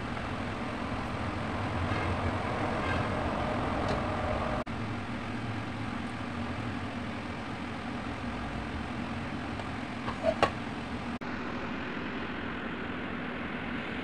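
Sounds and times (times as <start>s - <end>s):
steady rushing hum: 0.0s - 14.0s
low drone: 10.8s - 14.0s.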